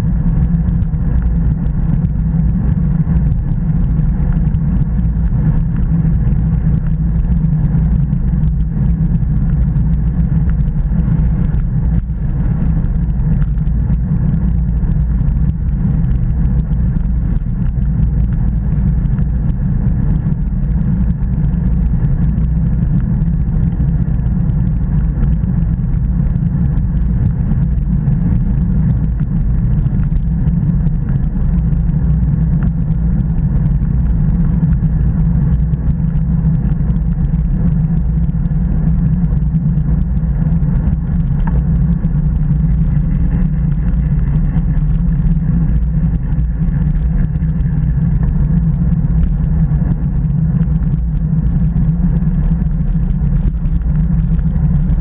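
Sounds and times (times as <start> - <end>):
bike tyres on asphalt: 0.0 - 55.0
wind buffeting microphone: 0.0 - 55.0.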